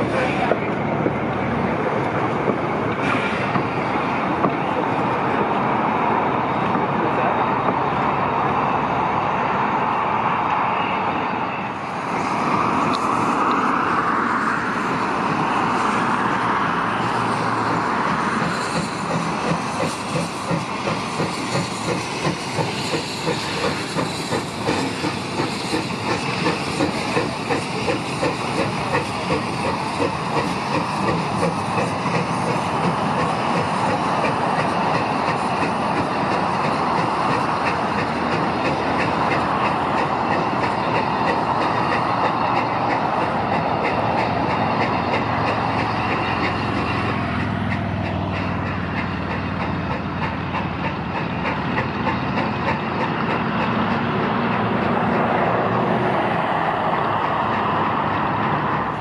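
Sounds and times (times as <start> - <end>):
steam locomotive exhaust chuffing: 0.0 - 59.0
steam hissing: 11.3 - 59.0
wheels clicking over rail joints: 14.9 - 59.0.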